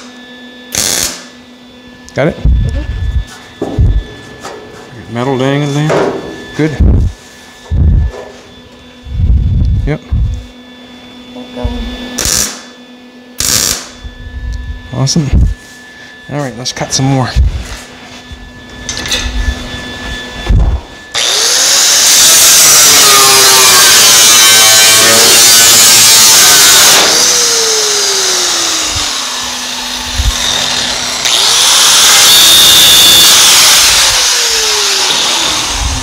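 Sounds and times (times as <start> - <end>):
angle grinder cutting sheet steel: 21.1 - 36.0.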